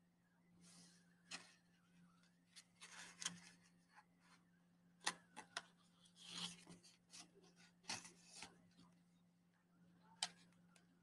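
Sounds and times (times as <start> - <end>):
paper rustling: 2.5 - 4.1, 6.0 - 8.6.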